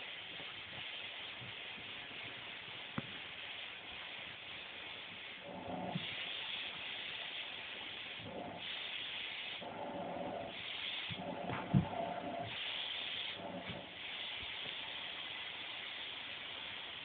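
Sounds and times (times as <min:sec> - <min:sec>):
vacuum cleaner running: 0:09.6 - 0:12.6.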